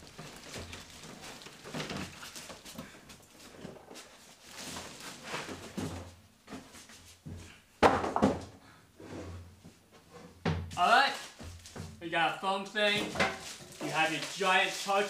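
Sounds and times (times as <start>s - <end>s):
cardboard scraping and rustling: 0.0s - 7.2s, 12.9s - 15.0s.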